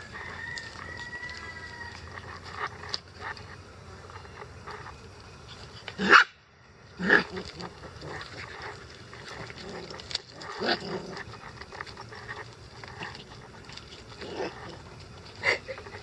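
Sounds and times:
puppy barking: 6.0 - 6.3.

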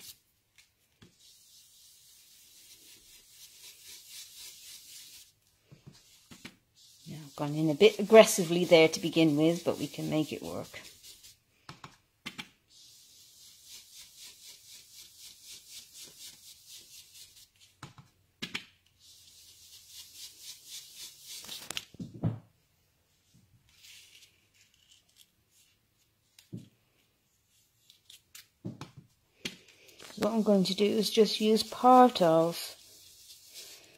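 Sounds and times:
brush scratching on cardstock: 1.1 - 5.3, 5.9 - 11.4, 12.7 - 17.6, 19.0 - 21.8, 30.0 - 33.9.

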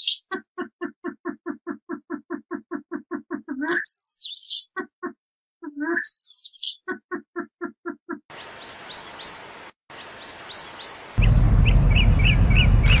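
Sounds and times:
bird-like chirps: 0.0 - 7.7, 8.3 - 13.0
low rumble: 11.2 - 13.0.

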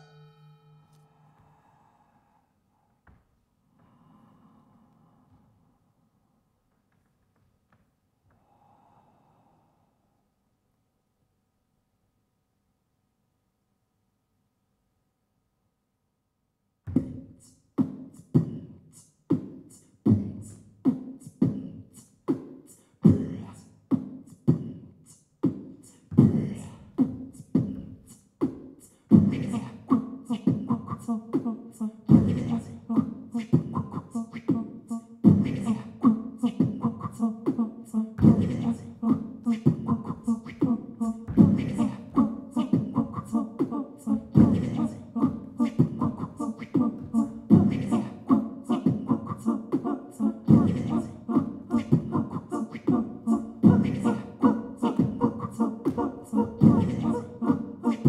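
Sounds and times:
beatboxing into a microphone: 16.9 - 58.0.

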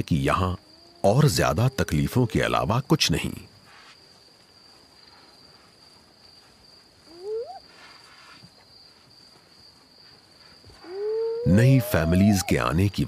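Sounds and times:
crickets trilling: 0.0 - 13.0
hyena whooping: 10.8 - 12.8.

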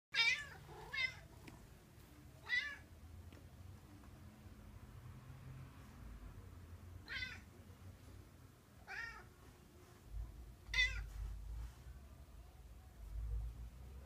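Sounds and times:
cat giving wavering cries: 0.1 - 1.3, 8.8 - 9.3.

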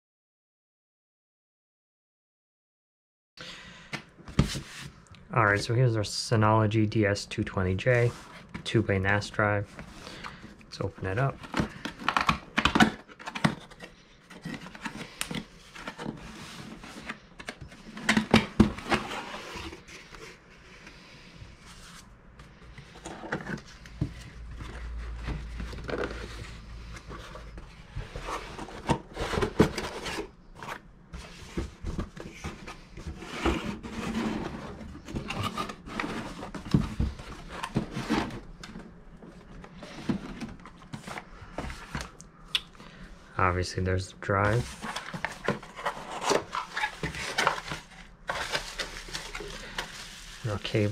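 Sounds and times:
cardboard box being unpacked: 11.2 - 20.6, 22.7 - 42.2, 44.5 - 50.9.

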